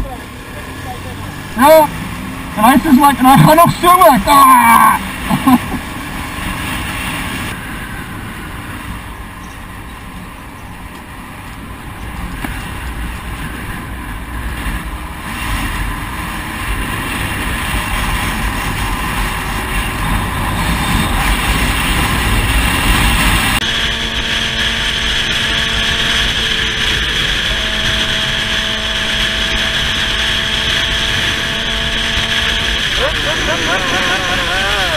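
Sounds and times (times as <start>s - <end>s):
motorcycle engine running: 15.7s - 34.9s.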